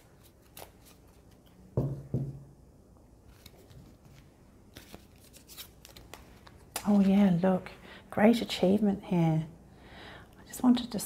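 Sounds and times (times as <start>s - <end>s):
cards being shuffled: 0.0s - 1.7s, 3.3s - 7.3s.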